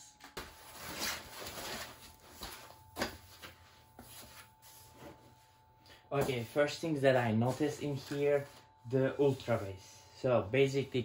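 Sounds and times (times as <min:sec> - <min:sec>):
cardboard and foam rustling: 0:00.4 - 0:05.4.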